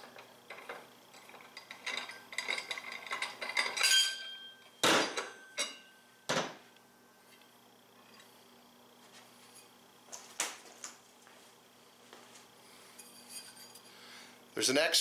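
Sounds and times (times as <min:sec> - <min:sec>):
metal clinking and scraping: 0:00.0 - 0:06.0, 0:12.9 - 0:13.9
ringing metallic tones: 0:03.6 - 0:06.2.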